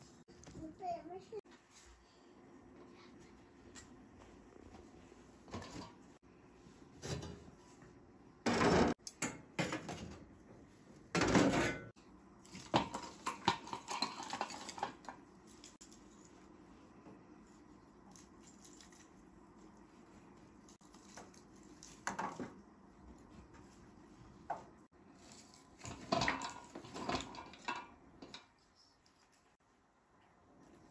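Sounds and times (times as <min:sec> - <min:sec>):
steel basin clattering: 0:25.8 - 0:28.4.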